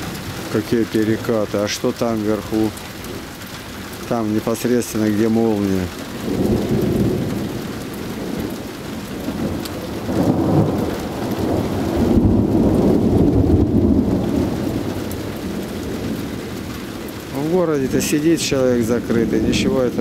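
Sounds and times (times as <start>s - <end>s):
heavy rain: 0.0s - 20.0s
rolling thunder: 6.0s - 20.0s.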